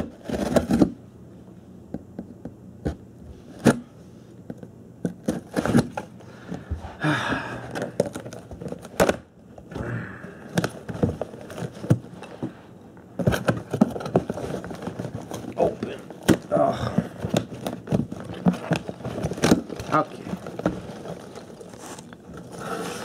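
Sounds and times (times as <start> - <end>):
cardboard tearing and rustling: 0.0 - 1.0, 5.1 - 6.2, 7.7 - 9.2, 10.5 - 12.3, 13.1 - 23.0.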